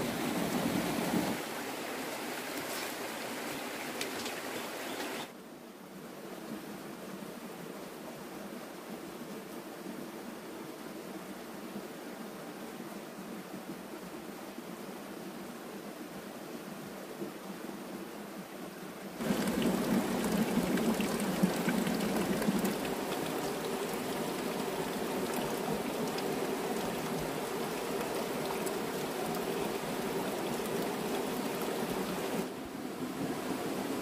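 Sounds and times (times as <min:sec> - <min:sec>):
running water: 0:00.0 - 0:05.3, 0:19.2 - 0:34.0.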